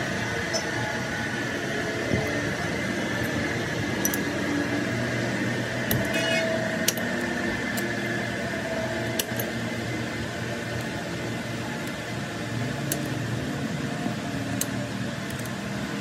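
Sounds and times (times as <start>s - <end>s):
machine running with faint whine: 0.0s - 16.0s
sharp metallic clicks: 3.2s - 4.4s, 5.8s - 7.9s, 9.0s - 9.6s, 12.8s - 13.2s.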